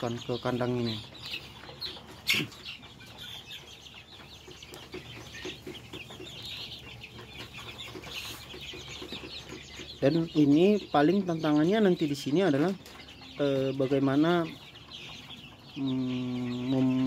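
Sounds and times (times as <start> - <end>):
chicks peeping and cheeping: 0.0 - 17.0
low clucks: 0.9 - 10.0.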